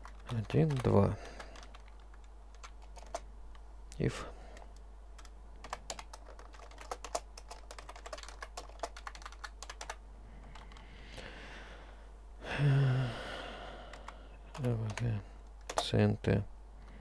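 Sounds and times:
person speaking: 0.0s - 1.9s, 3.9s - 4.8s, 14.4s - 16.5s
computer keyboard typing: 0.0s - 3.3s, 4.5s - 10.9s, 13.9s - 16.0s.

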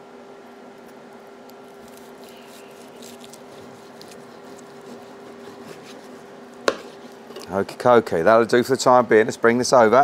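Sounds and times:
steady low hum: 0.0s - 10.0s
knife slicing meat: 1.6s - 7.5s
sharp knock on cutting board: 6.6s - 6.9s.

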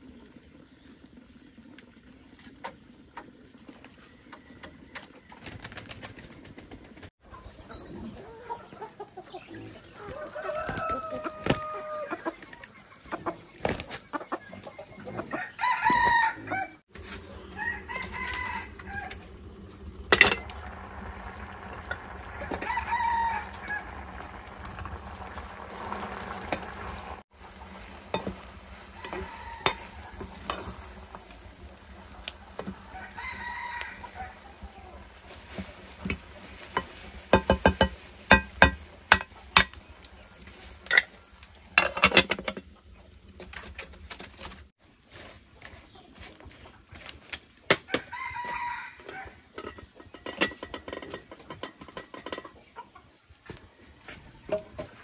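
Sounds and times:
chickens clucking: 3.9s - 41.9s, 48.1s - 55.0s
rooster crowing: 10.0s - 12.2s, 15.4s - 16.8s, 17.4s - 27.2s, 28.1s - 35.0s, 47.9s - 49.5s.

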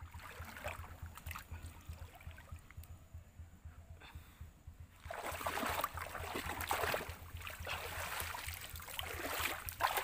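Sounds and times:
stream water splashing: 0.0s - 2.9s, 4.9s - 10.0s.

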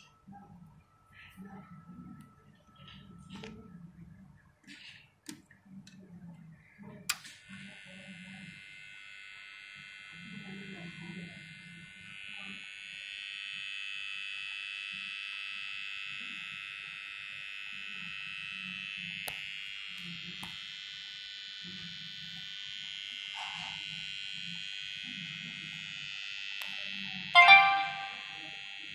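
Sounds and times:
high-pitched electrical whine: 27.3s - 28.9s.

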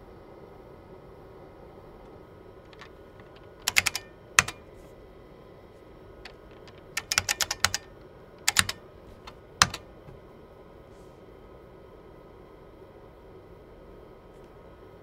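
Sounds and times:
keyboard key clicks: 2.7s - 4.6s, 6.3s - 10.2s.

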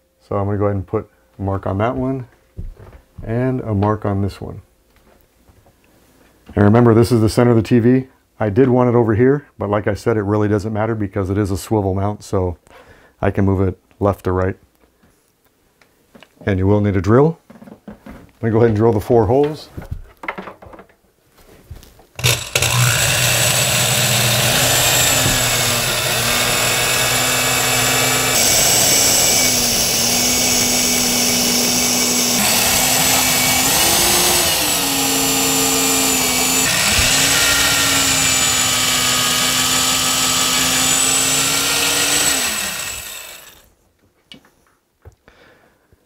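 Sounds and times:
electric drill boring into wood: 22.2s - 43.7s.

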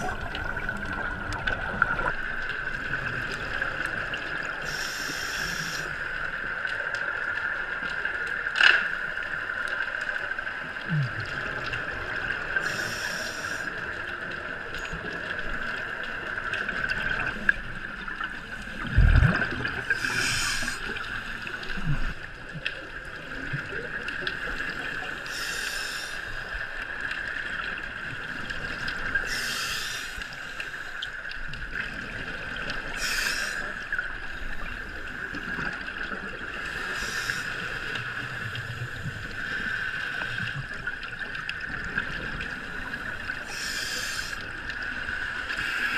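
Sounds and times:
exhaled bubbles underwater: 0.0s - 8.4s, 9.2s - 45.9s
steady hiss: 4.5s - 6.2s, 12.4s - 14.0s, 19.9s - 21.9s, 25.0s - 26.8s, 29.1s - 31.1s, 32.9s - 34.7s, 36.6s - 40.5s, 42.8s - 45.9s.

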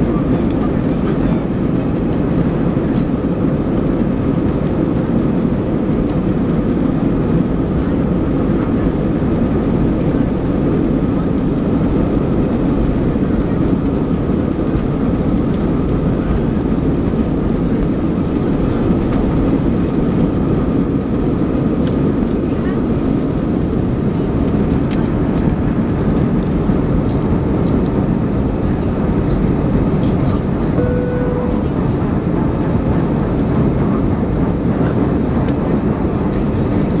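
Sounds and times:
jet engines roaring in cabin: 0.0s - 37.0s.

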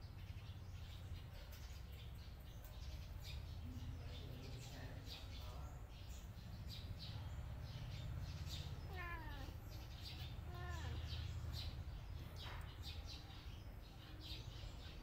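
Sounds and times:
cat meowing: 8.8s - 9.6s, 10.4s - 11.1s.

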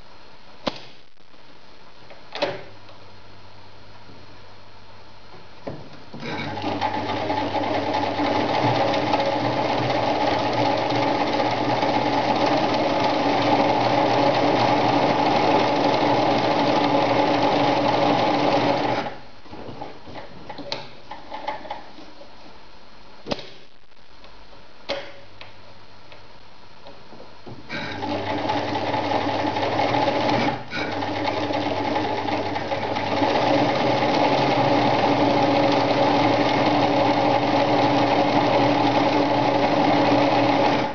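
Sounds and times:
electric sewing machine stitching: 6.2s - 19.2s, 27.7s - 40.9s.

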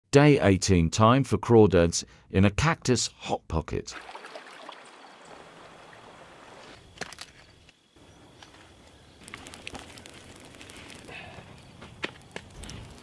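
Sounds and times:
steady outdoor hiss: 4.0s - 13.0s.

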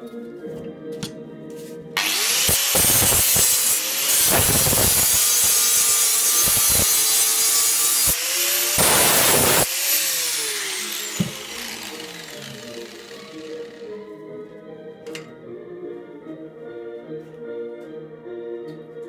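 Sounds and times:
angle grinder cutting steel: 2.0s - 13.9s.

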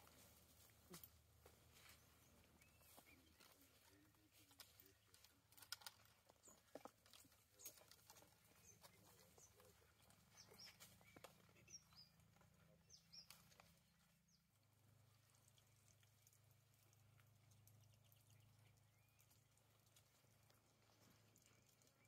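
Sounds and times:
small clicks: 4.5s - 6.2s.

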